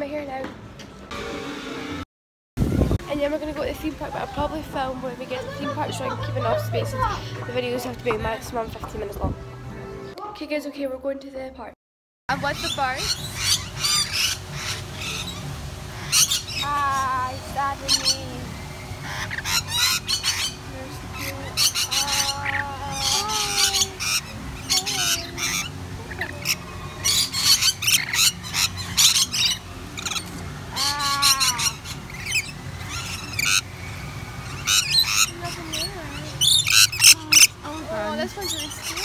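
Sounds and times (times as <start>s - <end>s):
lorikeets screeching: 12.3s - 39.0s.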